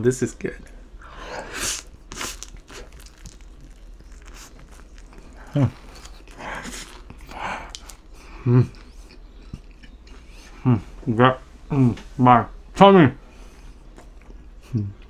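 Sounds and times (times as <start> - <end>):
man chewing crust: 1.0 - 10.6, 13.5 - 15.0.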